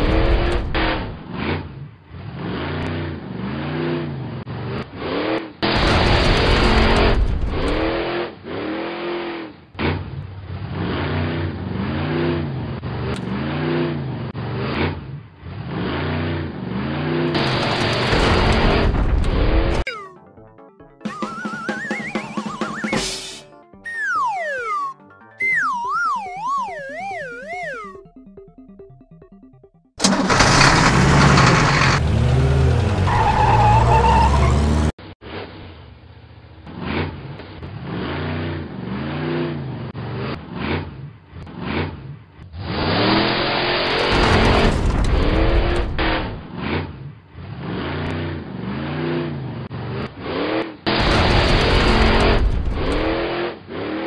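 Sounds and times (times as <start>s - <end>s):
monster truck engine revving: 0.0s - 19.8s, 30.0s - 35.9s, 36.6s - 54.0s
quieter engine revving: 30.0s - 35.8s
tyre squeal: 33.0s - 34.8s.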